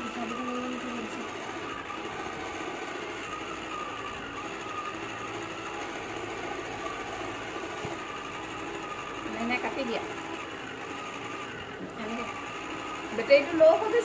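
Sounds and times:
small electric motor whirring: 0.0s - 14.0s.

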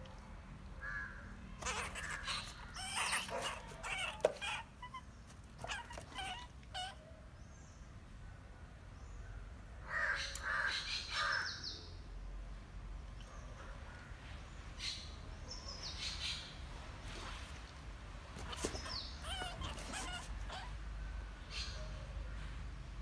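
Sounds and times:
crows cawing: 0.8s - 4.3s, 9.8s - 11.6s.

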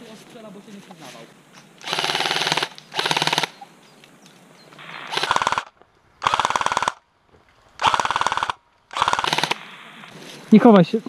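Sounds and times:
airsoft rifle full-auto bursts: 1.8s - 3.6s, 4.9s - 7.0s, 7.8s - 10.1s.

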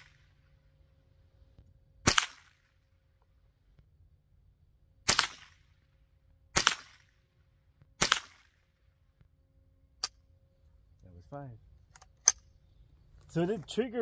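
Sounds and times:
rifle shots with echo: 2.0s - 2.9s, 5.0s - 5.9s, 6.5s - 7.3s, 8.0s - 8.9s.

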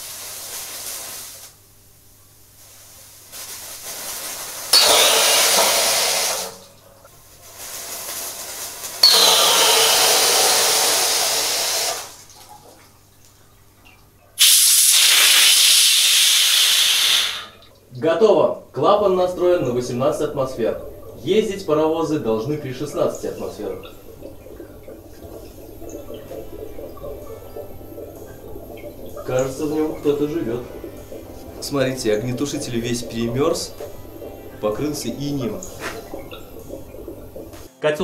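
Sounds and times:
safety valve hissing: 4.6s - 6.6s, 9.0s - 12.1s, 14.4s - 17.6s.

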